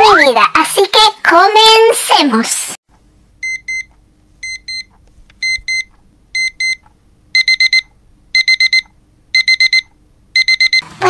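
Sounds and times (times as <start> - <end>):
digital alarm clock beeping: 3.4 - 6.8, 7.4 - 10.8.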